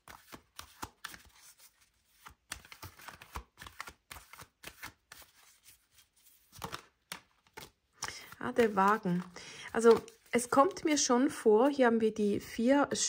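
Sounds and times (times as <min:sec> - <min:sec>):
cards shuffling and clicking: 0:00.0 - 0:11.1.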